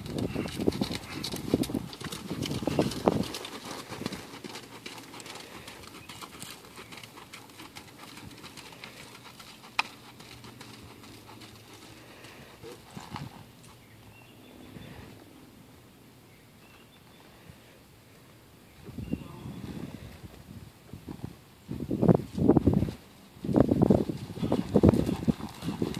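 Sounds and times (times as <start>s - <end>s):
horse hoofbeats on sand: 0.0s - 14.0s, 22.6s - 25.9s.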